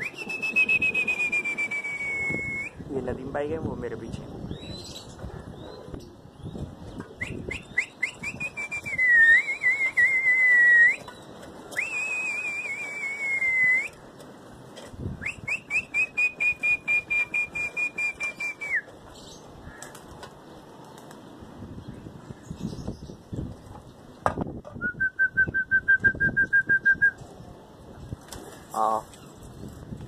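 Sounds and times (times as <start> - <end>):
person whistling loudly: 0.0 - 2.8, 7.2 - 11.0, 11.8 - 14.0.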